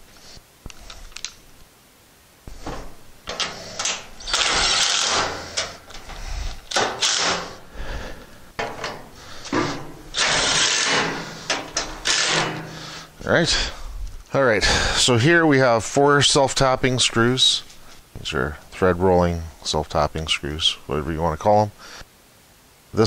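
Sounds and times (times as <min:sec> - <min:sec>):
cordless driver running bolts: 0:03.3 - 0:07.6, 0:08.6 - 0:12.7.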